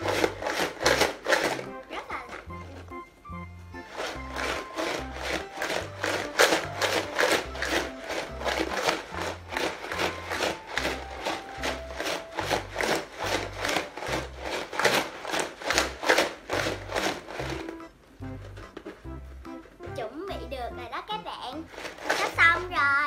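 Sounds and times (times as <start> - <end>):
ice rattling in shaken plastic jar: 0.0 - 2.8, 3.8 - 17.8, 21.7 - 22.8.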